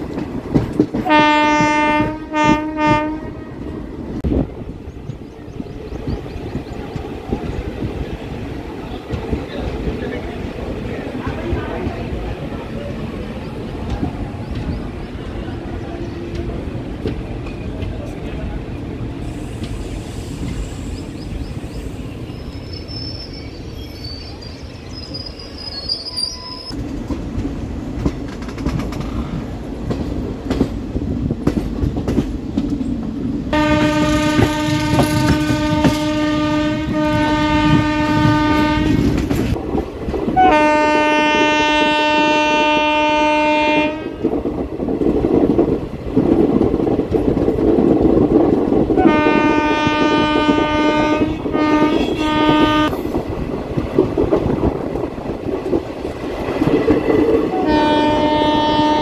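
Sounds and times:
train wheel rumble and clatter: 0:00.0 - 0:59.0
locomotive horn blasts: 0:01.0 - 0:03.5, 0:33.6 - 0:39.2, 0:40.4 - 0:44.2, 0:49.0 - 0:53.0, 0:57.6 - 0:59.0
faint high squeal: 0:19.8 - 0:26.8.

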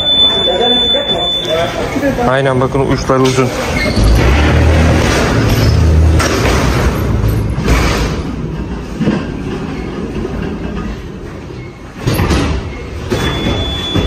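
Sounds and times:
pallet truck rolling rumble: 0:03.0 - 0:14.0
clatters and knocks: 0:03.3 - 0:14.0.

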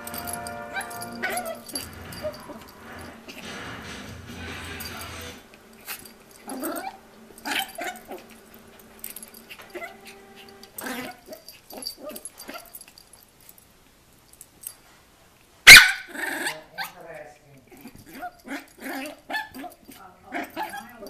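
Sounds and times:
dog yip: 0:00.7 - 0:02.5, 0:15.7 - 0:17.0
dog whimpering and growling: 0:00.8 - 0:03.5, 0:04.8 - 0:08.3, 0:09.3 - 0:12.3, 0:17.7 - 0:21.0.

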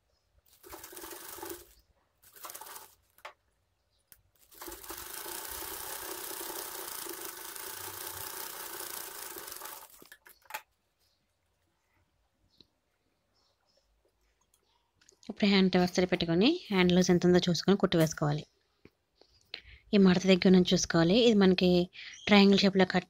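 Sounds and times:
sewing machine stitching: 0:00.5 - 0:03.3, 0:04.4 - 0:10.6.

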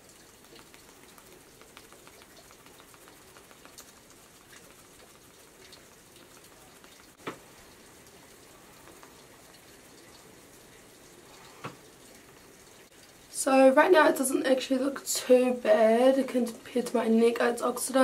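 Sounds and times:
makeup sponge dabbing skin: 0:00.0 - 0:07.1.

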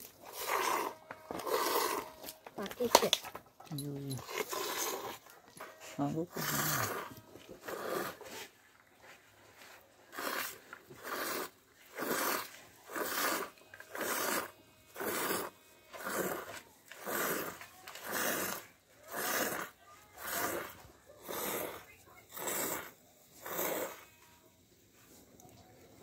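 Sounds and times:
milk squirting into steel tumbler: 0:10.0 - 0:24.1.

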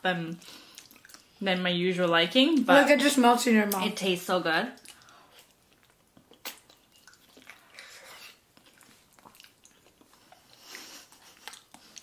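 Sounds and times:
wet chewing mouth sounds: 0:00.3 - 0:01.4, 0:04.8 - 0:12.0
mouth smacks and clicks: 0:04.8 - 0:12.0.

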